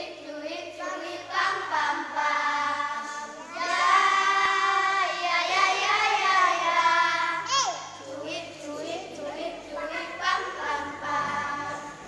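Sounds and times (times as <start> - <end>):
children singing together: 0.0 - 12.0.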